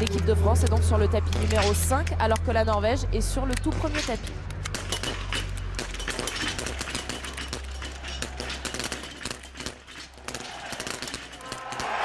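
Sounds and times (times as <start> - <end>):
rifles firing rapid crackle: 3.4 - 12.0.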